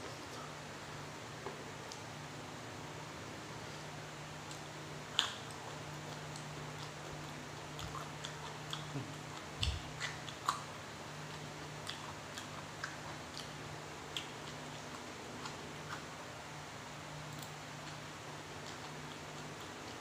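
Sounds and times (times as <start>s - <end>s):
chewing and crunching: 4.4s - 16.3s, 17.3s - 20.0s.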